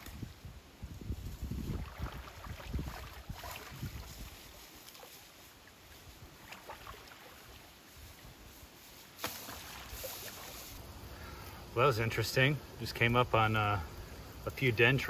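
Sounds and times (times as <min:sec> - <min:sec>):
water sloshing and splashing: 0:01.4 - 0:10.8.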